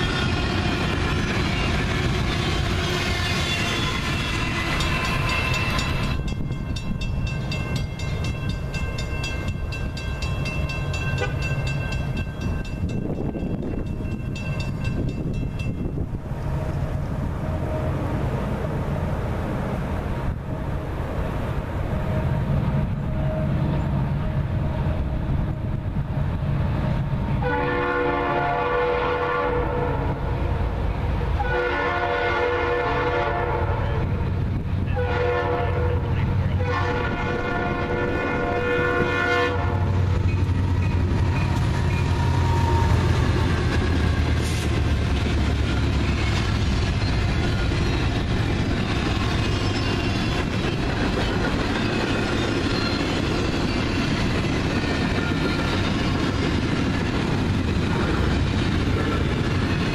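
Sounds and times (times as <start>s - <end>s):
passing train rushing: 0.0s - 59.9s
train rumble: 0.0s - 59.9s
locomotive horn blasts: 11.1s - 11.6s, 27.4s - 30.2s, 31.4s - 34.2s, 34.9s - 40.1s.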